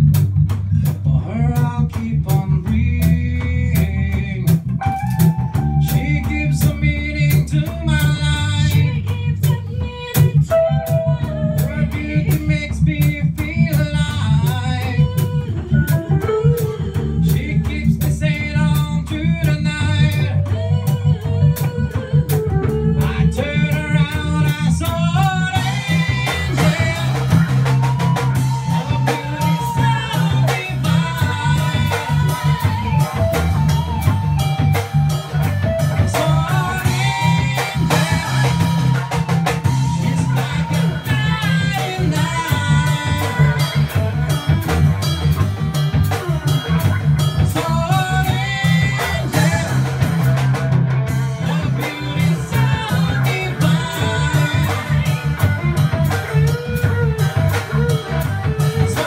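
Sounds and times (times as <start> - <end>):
reggae band song with singer: 0.0 - 59.0.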